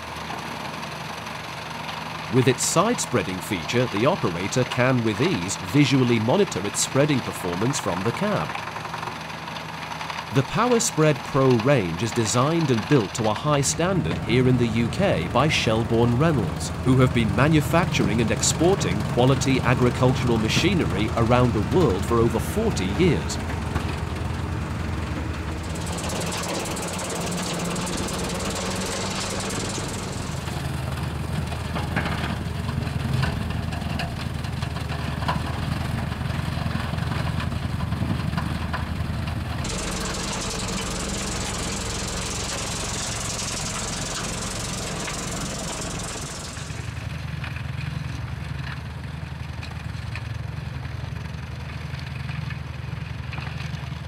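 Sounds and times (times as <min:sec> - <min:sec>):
tractor engine under load: 0:00.0 - 0:47.4
high hiss: 0:25.6 - 0:30.9, 0:39.6 - 0:47.1.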